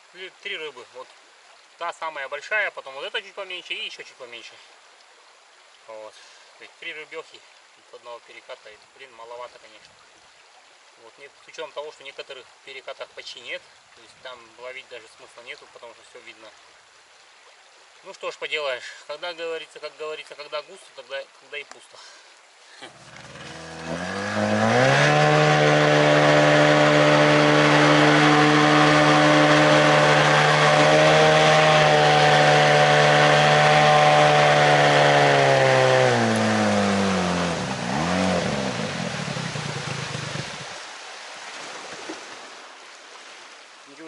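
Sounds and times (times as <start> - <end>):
outboard motor revving: 22.9 - 40.8.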